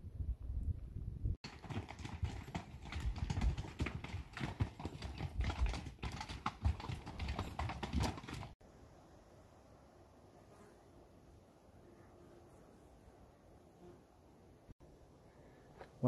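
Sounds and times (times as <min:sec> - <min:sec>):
hooves clopping on rocky trail: 0:01.4 - 0:08.6.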